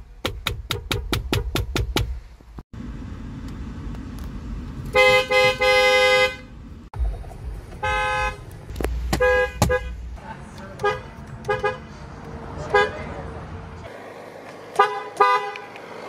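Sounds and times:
car horn blasts: 4.9s - 6.5s, 7.8s - 8.5s, 9.1s - 10.0s, 10.8s - 11.9s, 14.7s - 15.8s
short car honks: 14.8s - 15.7s.

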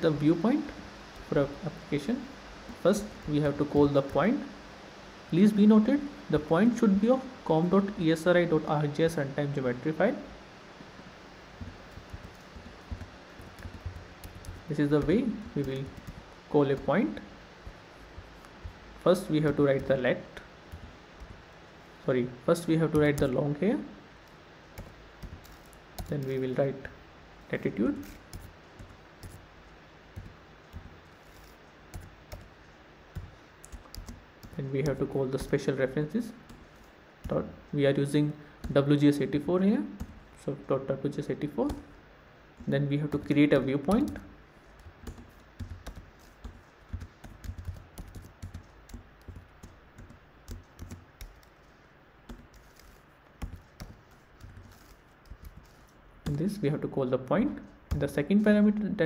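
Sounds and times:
computer keyboard typing: 11.6s - 20.0s, 24.7s - 26.5s, 30.1s - 37.5s, 43.0s - 56.4s.

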